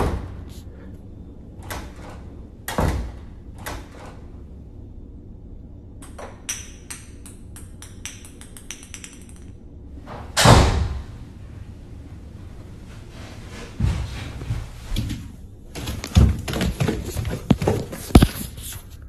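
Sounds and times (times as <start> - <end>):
door rattling clicks: 1.6 - 4.2
door banging: 10.1 - 11.2.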